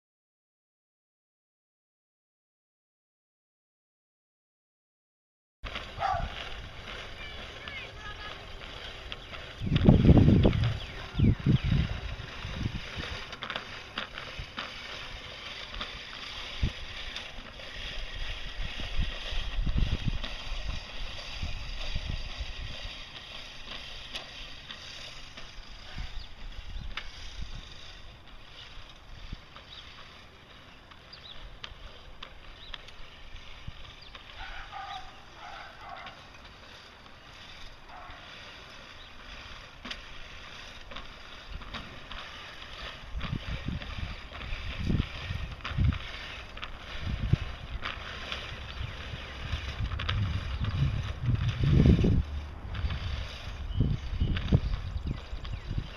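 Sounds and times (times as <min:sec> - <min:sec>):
reel mower whirring and clicking: 0:05.6 - 0:55.9
wind buffeting microphone: 0:05.8 - 0:30.2, 0:37.4 - 0:55.9.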